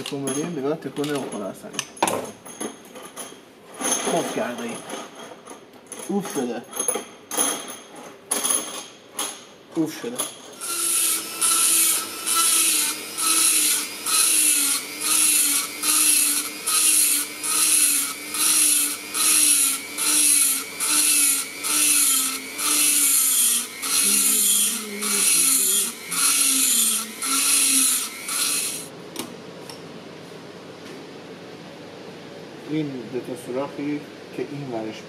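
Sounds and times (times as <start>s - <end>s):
ratchet wrench rasping: 10.6s - 28.9s.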